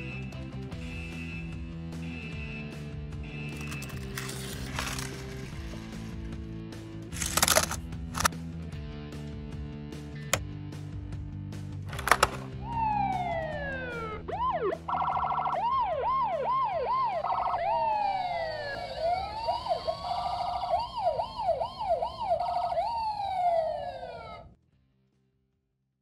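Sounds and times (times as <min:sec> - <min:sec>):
electronic siren wails and yelps: 0:12.6 - 0:24.5.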